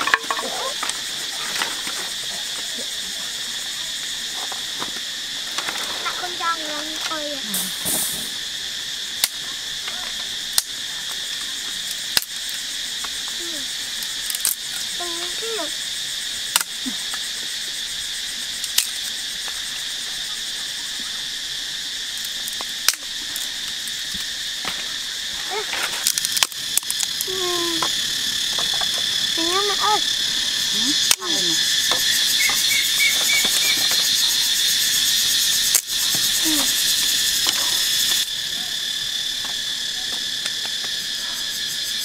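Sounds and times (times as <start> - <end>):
jungle insects droning: 0.0 - 42.0
dry sticks snapping: 14.1 - 14.8, 16.5 - 17.2, 18.6 - 19.1, 22.2 - 23.5, 25.9 - 27.9, 31.0 - 32.6.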